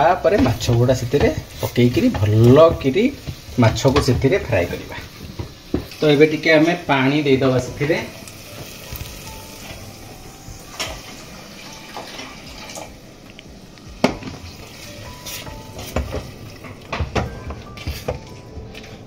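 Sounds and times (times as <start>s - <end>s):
spatula knocking on pot: 0.2s - 4.3s, 16.9s - 18.3s.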